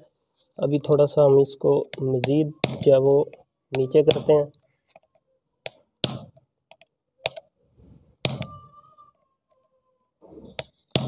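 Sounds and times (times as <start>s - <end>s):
screwdriver knocking a nail: 6.0s - 6.4s, 8.2s - 8.5s.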